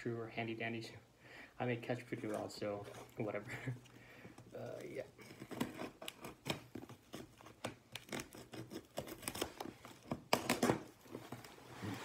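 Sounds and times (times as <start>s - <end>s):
tape tearing: 4.6s - 12.0s.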